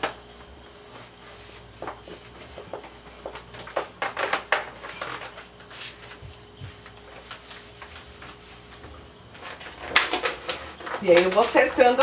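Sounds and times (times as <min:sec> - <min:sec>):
vinyl sheet crinkling: 0:00.9 - 0:12.0
cloth rubbing on vinyl: 0:01.0 - 0:02.3, 0:05.6 - 0:08.8.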